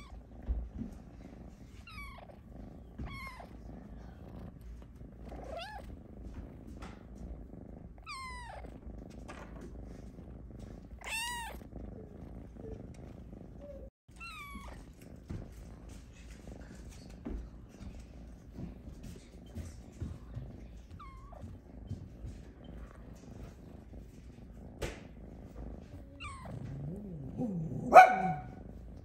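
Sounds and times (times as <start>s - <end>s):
kitten purring: 0.0s - 29.0s
kitten meowing: 5.5s - 5.8s, 8.0s - 8.7s, 11.0s - 11.6s, 13.7s - 14.8s.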